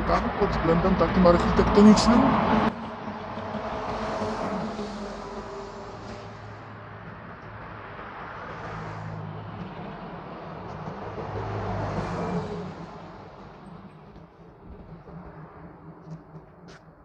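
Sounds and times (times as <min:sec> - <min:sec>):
passing motor vehicles: 0:00.0 - 0:17.0.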